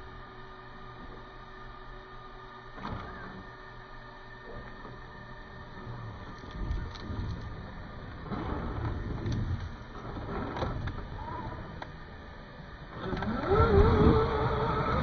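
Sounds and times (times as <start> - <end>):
tires clicking on stone: 8.2 - 11.0
toy car motor whining: 13.0 - 15.0.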